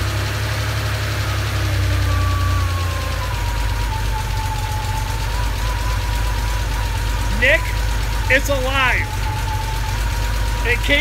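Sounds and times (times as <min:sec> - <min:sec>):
car engine idling: 0:00.0 - 0:11.0
thin whine: 0:01.5 - 0:11.0.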